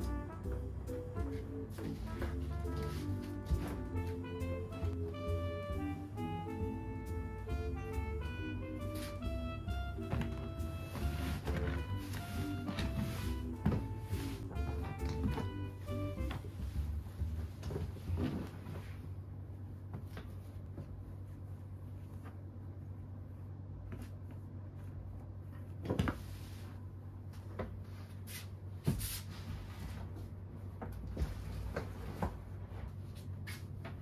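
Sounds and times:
steady low hum: 0.0 - 34.0
furniture knocking and clunking: 9.7 - 16.6.

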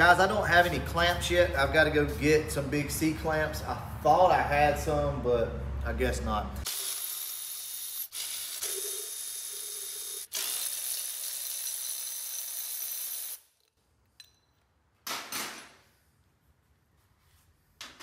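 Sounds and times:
cordless ratchet spinning: 6.7 - 13.5.

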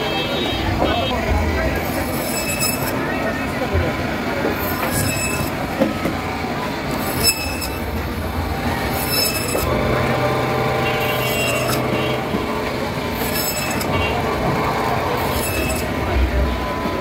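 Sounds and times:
band saw whining: 1.7 - 17.0
blade scraping hiss: 7.0 - 7.9, 13.2 - 13.9.

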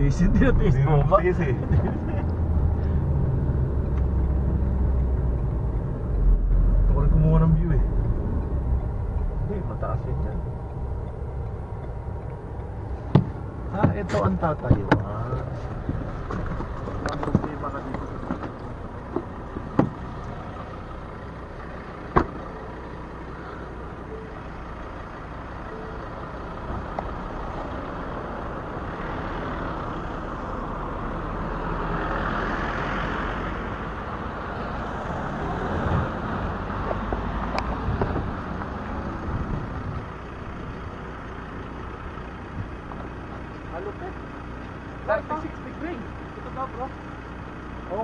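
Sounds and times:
minivan driving past: 0.0 - 48.0
sharp knocks: 13.1 - 15.1, 22.1 - 22.4.

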